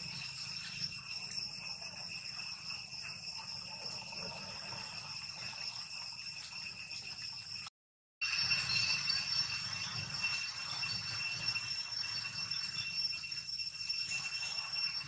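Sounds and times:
high-pitched insect drone: 0.0 - 15.0
outdoor background noise: 0.0 - 15.0.

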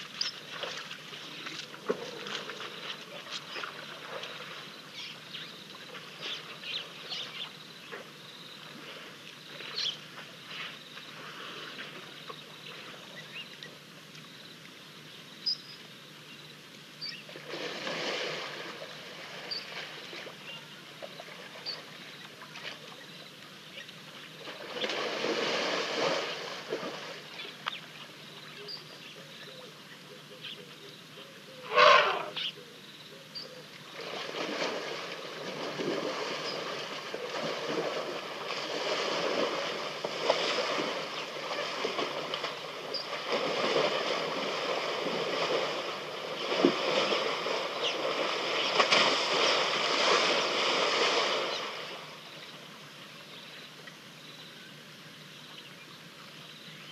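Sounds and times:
elephants splashing in mud: 0.0 - 7.4, 17.3 - 23.0, 24.1 - 28.0, 33.8 - 52.4.

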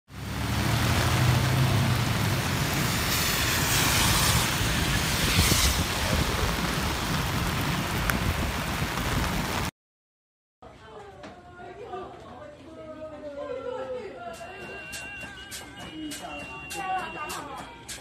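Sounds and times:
heavy rain on wet street: 0.1 - 9.7.

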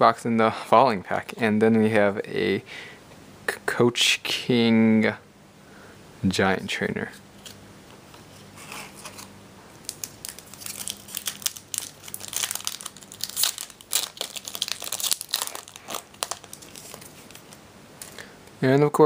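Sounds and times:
foil wrapper crinkling and tearing: 8.9 - 18.2.

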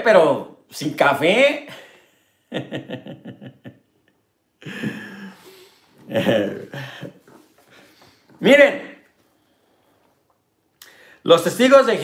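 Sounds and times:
man laughing: 2.5 - 3.9, 4.6 - 7.5.

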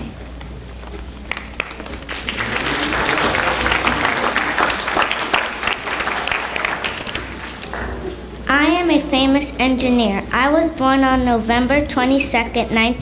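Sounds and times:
audience applause: 1.2 - 8.2.

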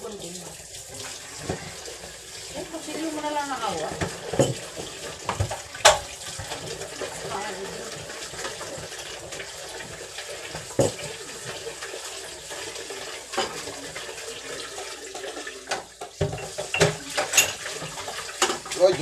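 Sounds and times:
tap running into a sink: 0.4 - 19.0
sharp knocks at the sink: 3.9 - 6.1, 10.8 - 11.0, 15.7 - 17.5.

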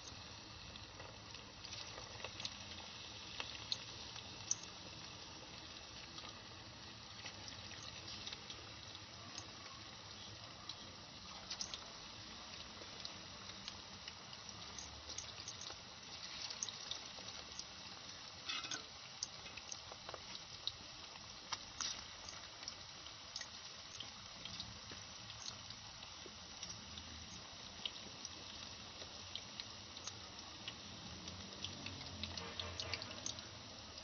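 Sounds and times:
fish deep-frying in oil: 0.0 - 34.0
oil popping: 0.4 - 26.8.

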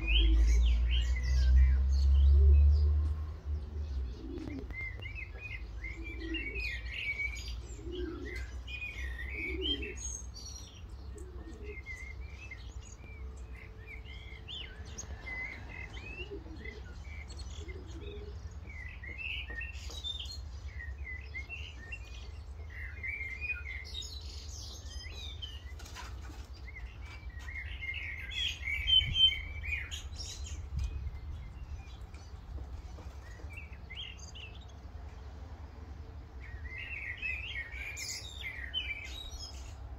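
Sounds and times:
pigeon cooing: 0.0 - 0.9, 4.0 - 10.1, 11.0 - 12.3, 14.8 - 18.4
birds chirping and twittering: 0.0 - 39.9.

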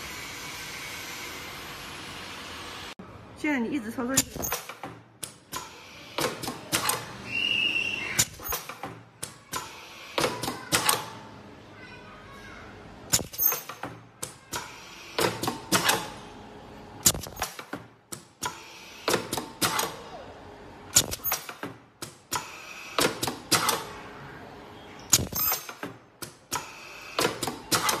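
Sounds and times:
pneumatic welding head clicking: 20.9 - 23.8.

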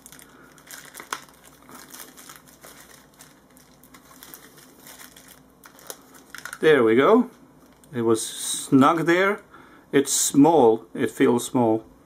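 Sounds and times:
plastic wrapping crinkling: 0.0 - 8.0.

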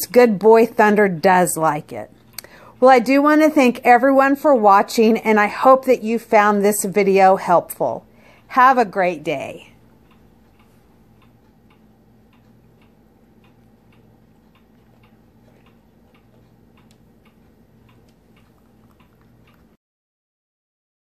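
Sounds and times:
low steady hum: 0.0 - 19.8
faint even ticking: 8.0 - 19.8.

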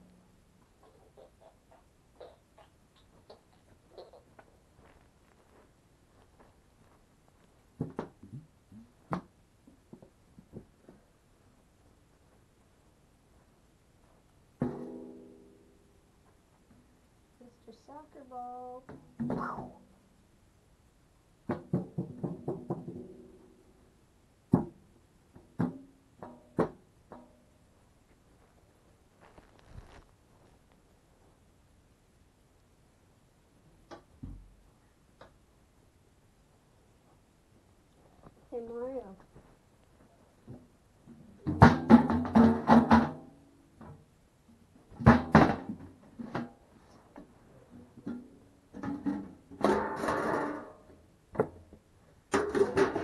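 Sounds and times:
metal tin kicked clanging: 48.0 - 50.9.

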